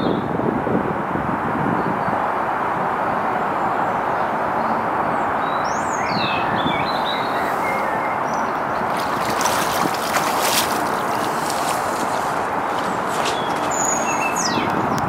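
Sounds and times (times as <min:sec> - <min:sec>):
rushing wind: 0:00.0 - 0:15.0
bird chirping: 0:03.8 - 0:15.0
splashing through shallow water: 0:05.2 - 0:15.0.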